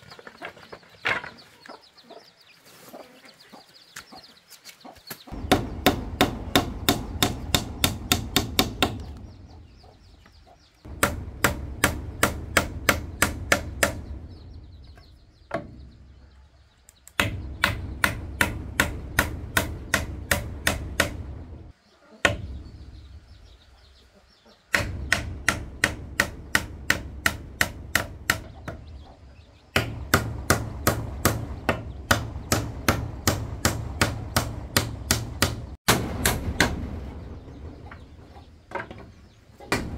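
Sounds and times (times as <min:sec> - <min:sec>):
hand tool striking wood: 0:05.4 - 0:09.2, 0:10.9 - 0:14.1, 0:17.2 - 0:21.3, 0:24.7 - 0:28.8.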